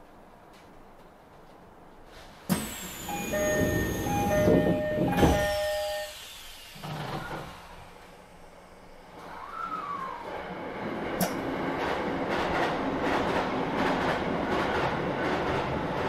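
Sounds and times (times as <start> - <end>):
train doors hissing: 2.1 - 8.8
two-note electronic door chime: 3.1 - 6.2.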